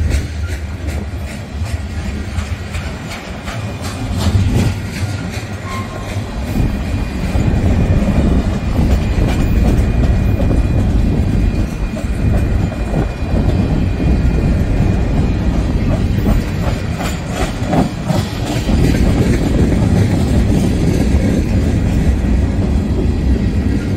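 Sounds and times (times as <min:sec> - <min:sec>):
freight train rumbling past: 0:00.0 - 0:23.9
wheels clicking over rail joints: 0:00.0 - 0:23.9.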